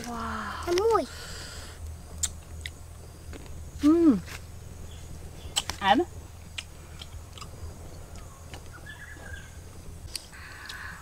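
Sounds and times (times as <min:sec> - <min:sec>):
steady low hum: 0:00.0 - 0:11.0
faint bird chirp: 0:06.8 - 0:09.8.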